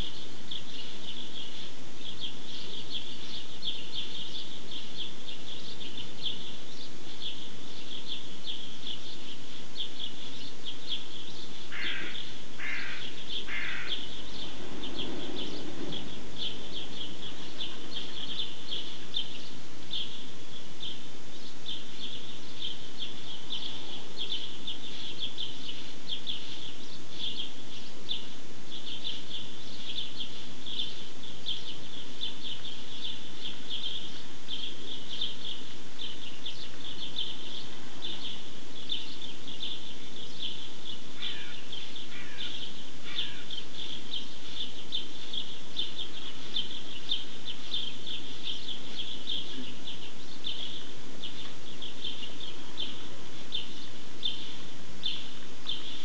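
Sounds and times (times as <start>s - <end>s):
lower bird calls: 0.0s - 56.0s
small birds chirping: 0.0s - 56.0s.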